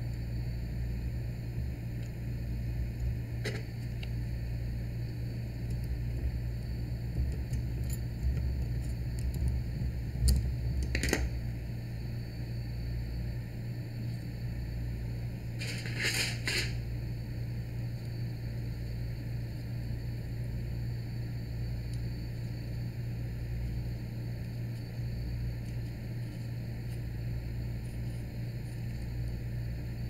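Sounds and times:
steady low hum: 0.0s - 30.0s
brief scrape: 15.6s - 16.8s.

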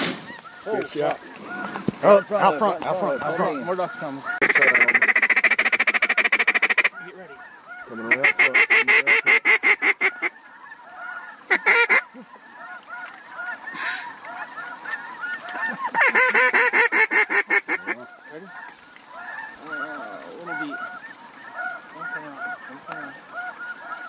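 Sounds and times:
geese honking: 0.0s - 24.0s
hand-blown waterfowl call: 11.0s - 18.0s.

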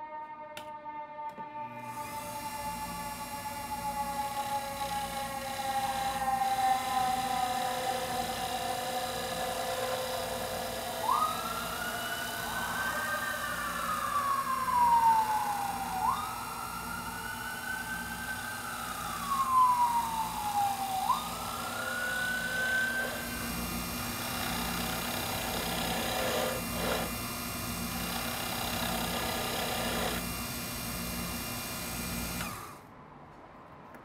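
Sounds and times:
siren wailing: 0.0s - 23.7s
chisel scraping wood on lathe: 24.2s - 27.2s, 28.0s - 30.2s.

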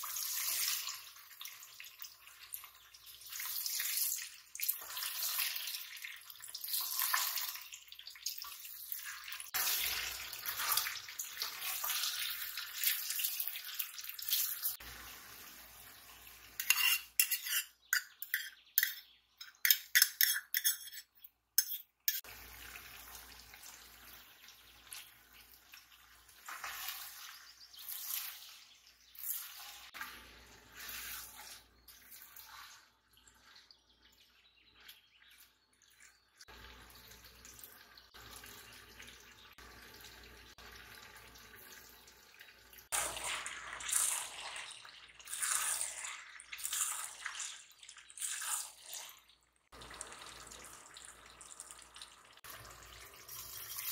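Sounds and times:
utensil clinking against pots: 16.6s - 22.3s.

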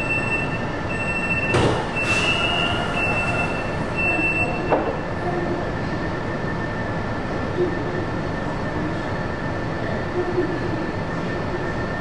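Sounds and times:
train running in tunnel: 0.0s - 12.0s
high wheel squeal: 2.0s - 4.4s.

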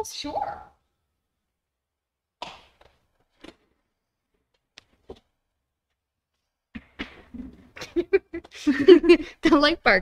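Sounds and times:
soft knocks and thumps: 6.7s - 8.6s.

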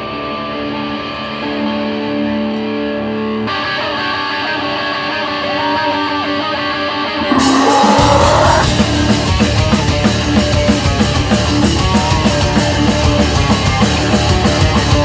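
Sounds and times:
drums and full rock band: 7.2s - 15.0s.

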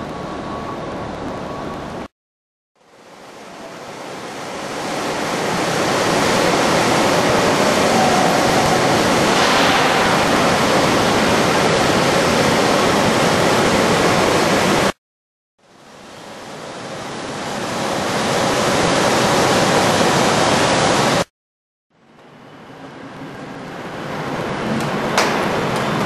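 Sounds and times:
loud rushing hiss: 3.0s - 15.0s.

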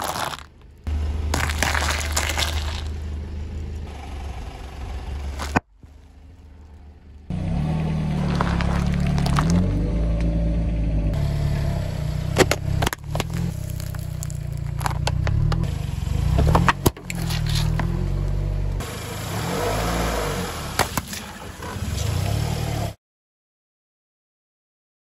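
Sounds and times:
objects cracking under car tyre: 0.0s - 3.1s, 5.2s - 7.3s, 8.1s - 9.8s, 12.2s - 18.5s
car engine: 0.0s - 23.0s.

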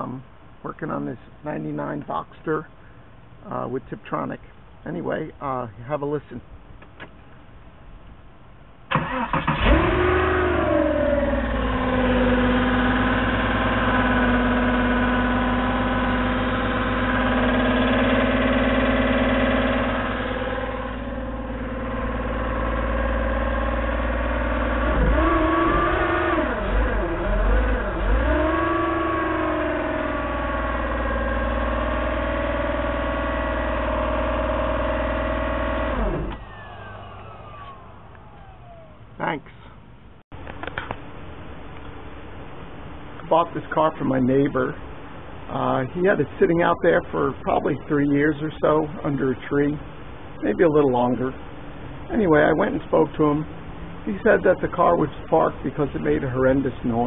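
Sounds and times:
car engine starting and revving: 8.9s - 38.9s
grinding transmission noise: 8.9s - 39.6s, 43.0s - 57.0s.

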